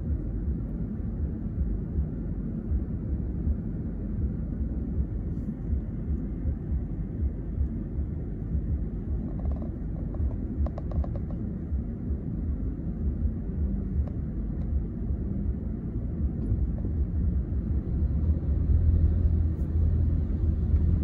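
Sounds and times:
car engine rumble inside cabin: 0.0 - 21.0
rapid ticks: 8.6 - 11.9.

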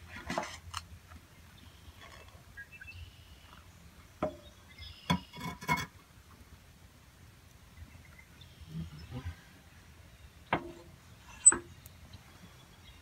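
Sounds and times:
metal pan scraping on stove: 5.2 - 6.0.

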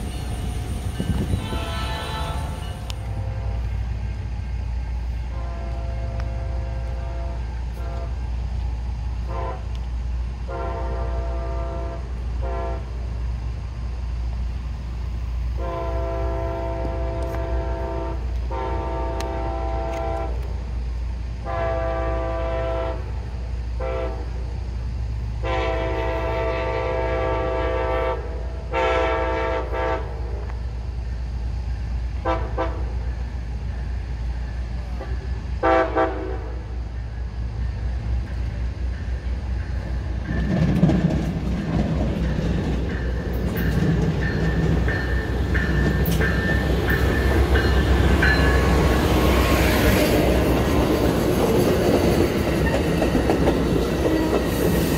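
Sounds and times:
locomotive air horn blasts: 0.0 - 3.8, 5.3 - 8.2, 9.2 - 9.8, 10.5 - 13.0, 15.6 - 20.6, 21.4 - 23.2, 23.8 - 24.4, 25.4 - 30.4, 32.2 - 33.0, 35.0 - 36.8
low train rumble: 0.0 - 54.9.

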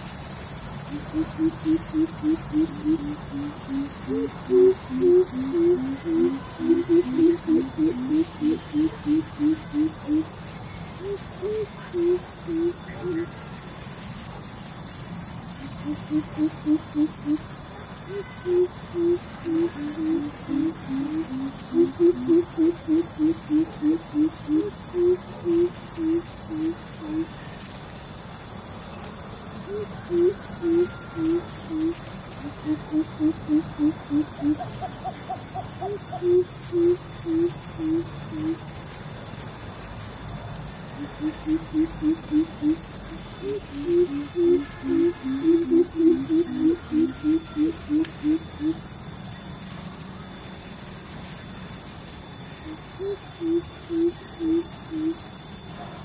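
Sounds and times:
high-pitched insect drone: 0.0 - 56.0
bird hooting deeply: 0.9 - 10.3, 11.0 - 13.4, 15.6 - 17.5, 18.1 - 27.3, 29.7 - 38.6, 41.0 - 48.8, 52.6 - 55.2.

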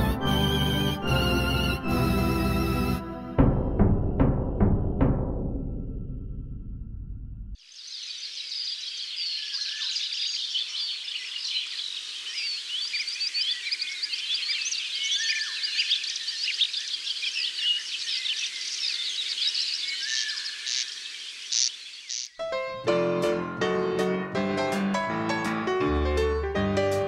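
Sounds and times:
birds chirping and singing: 7.6 - 22.4.

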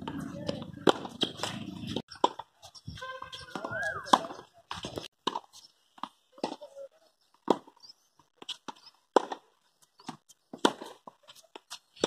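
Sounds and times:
tennis racket hitting ball: 0.0 - 2.4, 3.3 - 6.6, 8.7 - 9.4.

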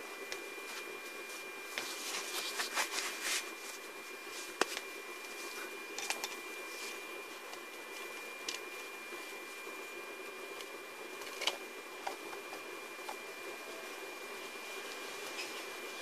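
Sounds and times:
steady low hum: 0.0 - 16.0
thin high-pitched whine: 0.0 - 16.0
rustling: 0.6 - 5.6.

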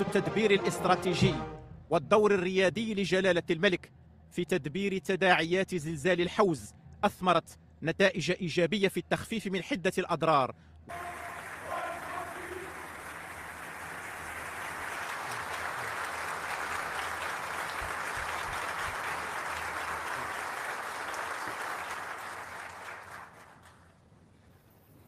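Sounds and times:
crowd applauding: 10.9 - 23.9.

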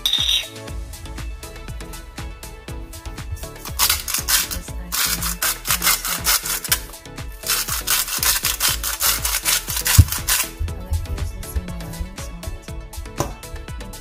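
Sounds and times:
background music: 0.0 - 14.0
salt grinder scraping rattle: 3.4 - 10.6.

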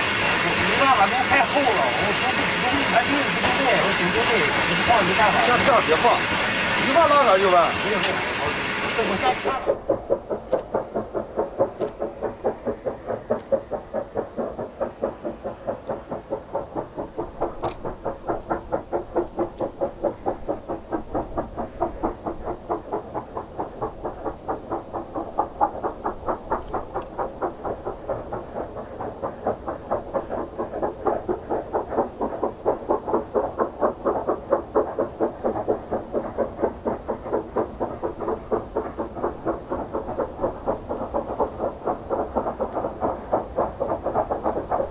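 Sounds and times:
steam locomotive exhaust chuffing: 0.0 - 44.9.

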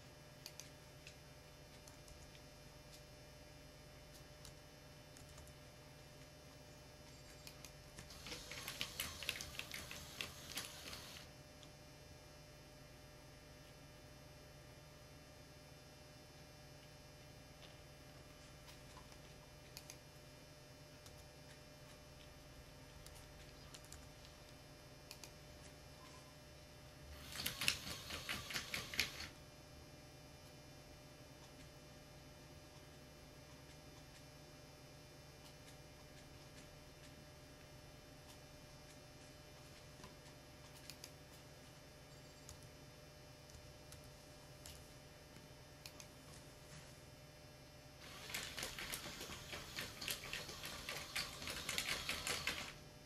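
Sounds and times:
robot motors and tracks rattling: 8.1 - 11.2, 27.2 - 29.3, 48.0 - 52.8.

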